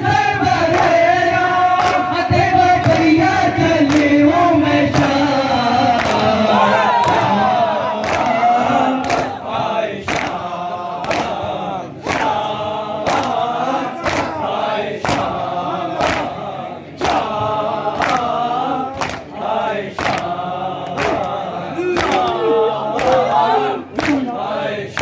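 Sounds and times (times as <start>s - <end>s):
men chanting in unison: 0.0s - 25.0s
hands slapping chests: 1.8s - 2.1s, 3.9s - 4.2s, 6.0s - 6.3s, 9.0s - 9.4s, 10.0s - 10.4s, 11.0s - 12.4s, 13.0s - 14.4s, 15.0s - 15.4s, 16.0s - 16.4s, 17.0s - 17.3s, 18.0s - 19.3s, 20.0s - 21.4s, 22.0s - 24.3s.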